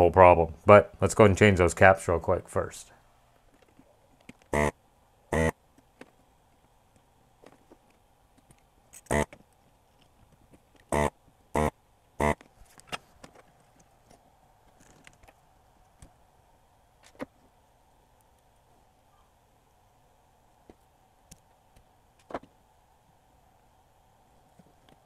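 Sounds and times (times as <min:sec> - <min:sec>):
desoldering tool bursts: 0:04.5 - 0:04.7, 0:05.3 - 0:05.5, 0:09.0 - 0:09.4, 0:10.8 - 0:12.4.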